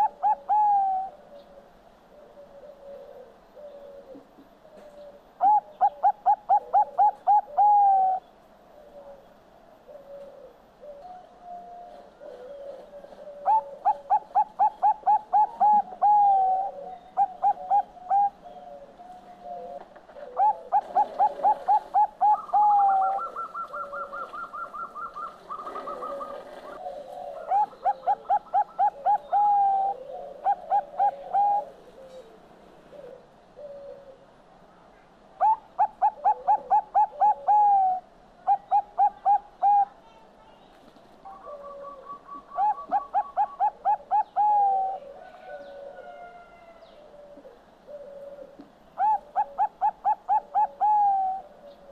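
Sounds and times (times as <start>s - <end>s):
dove singing staccato coos: 0.0s - 8.2s, 8.8s - 34.3s, 35.4s - 39.9s, 41.2s - 51.9s
fainter lower cooing: 9.9s - 34.3s, 35.4s - 40.0s, 41.3s - 51.8s.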